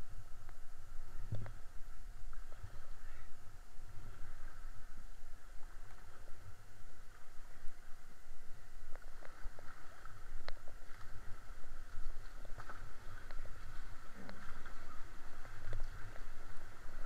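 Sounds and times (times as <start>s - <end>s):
flowing water rushing: 0.0s - 17.0s
paddle strokes and splashing: 1.2s - 17.0s.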